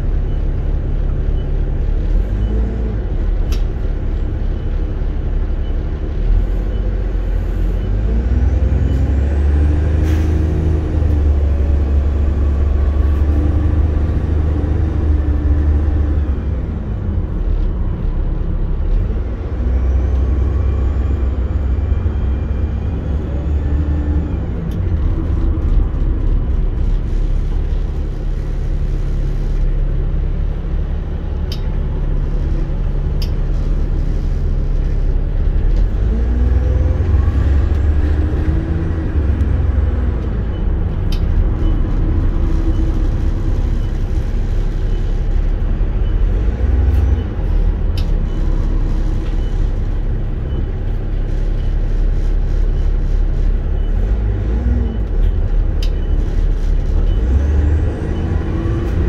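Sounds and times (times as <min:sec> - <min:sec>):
bus engine rumbling: 0:00.0 - 0:59.0
bus body clicks and rattles: 0:03.4 - 0:04.1, 0:31.1 - 0:36.0.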